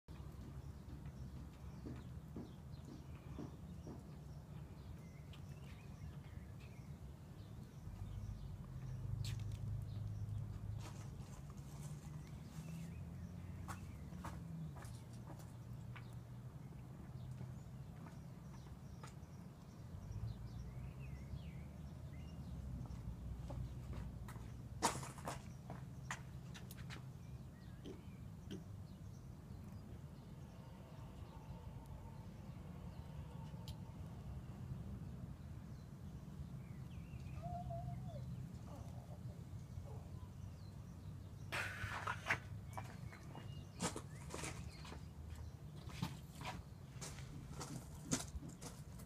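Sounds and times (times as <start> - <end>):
faint bird chirps: 37.1 - 40.3.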